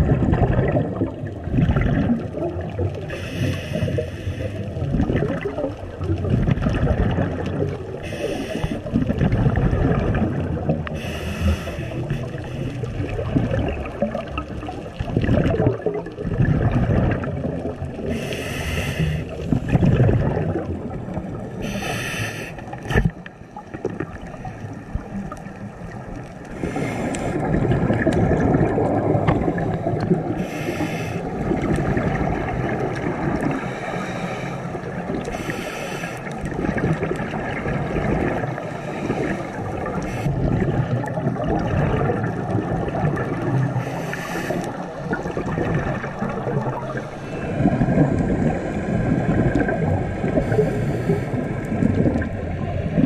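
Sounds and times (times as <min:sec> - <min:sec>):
gurgle of exhaled bubbles: 0:00.0 - 0:53.0
regulator hissing inhale: 0:03.1 - 0:04.7, 0:08.0 - 0:08.9, 0:11.0 - 0:12.9, 0:18.0 - 0:19.5, 0:21.6 - 0:22.8, 0:26.5 - 0:27.5, 0:29.6 - 0:31.4, 0:33.6 - 0:36.4, 0:38.7 - 0:40.4, 0:43.8 - 0:44.9, 0:50.4 - 0:51.7.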